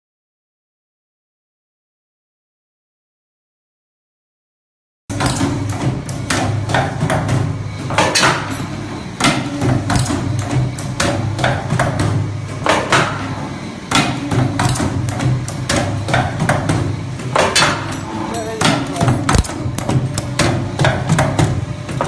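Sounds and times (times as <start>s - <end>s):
low machine hum: 5.1s - 22.0s.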